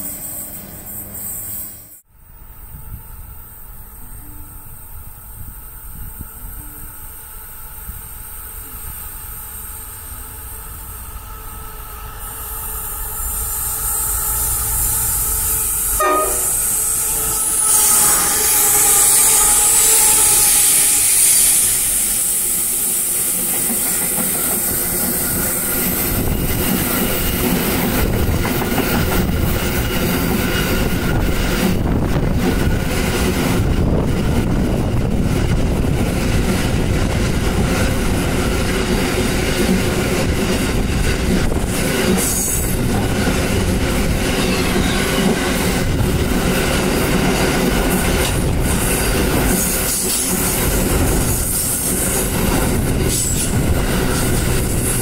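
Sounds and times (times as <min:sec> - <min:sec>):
locomotive horn blast: 0:15.1 - 0:21.2, 0:44.3 - 0:45.4.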